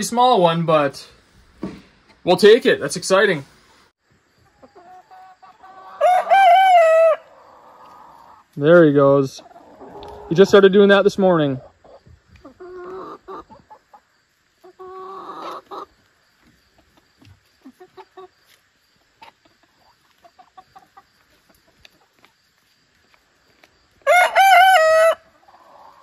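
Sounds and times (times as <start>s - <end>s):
chickens clucking: 0.0s - 3.4s, 4.0s - 26.0s
young rooster crowing: 5.7s - 7.7s, 24.0s - 25.9s.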